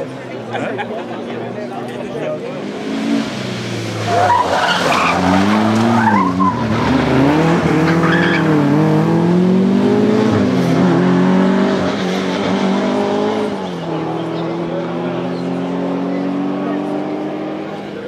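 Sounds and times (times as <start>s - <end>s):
rally car engine revving: 0.0s - 18.0s
tyres squealing: 4.0s - 7.0s, 7.8s - 8.6s.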